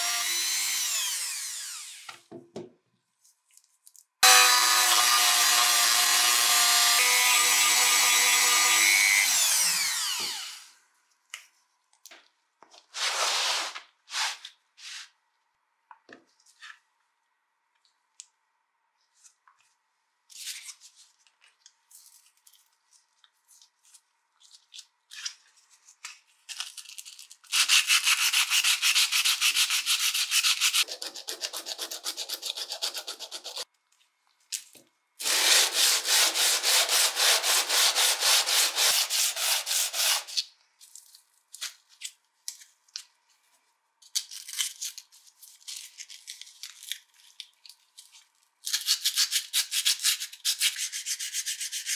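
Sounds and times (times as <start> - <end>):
sandpaper rubbing on metal: 27.5 - 33.6, 35.2 - 40.4, 49.0 - 51.9.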